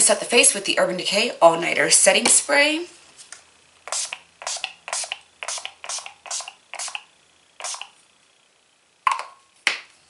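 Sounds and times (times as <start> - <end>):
spray bottle hissing spritzes: 3.8 - 8.0.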